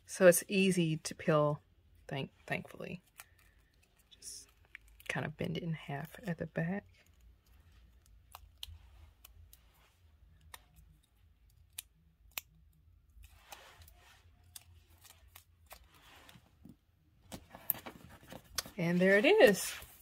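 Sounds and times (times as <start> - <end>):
label tape crinkling and clicking: 3.0 - 5.3, 6.2 - 16.7, 17.3 - 19.6.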